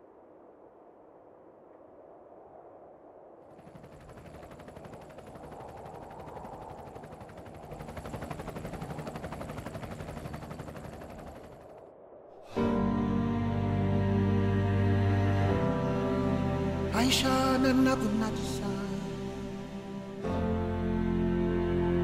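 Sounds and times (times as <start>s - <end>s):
music: 12.5s - 22.0s.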